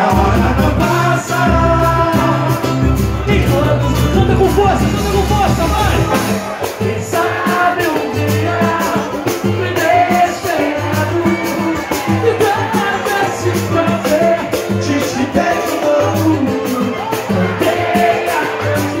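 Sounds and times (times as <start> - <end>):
acoustic guitar: 0.0 - 19.0
bass: 0.0 - 19.0
cavaquinho: 0.0 - 19.0
keyboard: 0.0 - 19.0
samba percussion: 0.0 - 19.0.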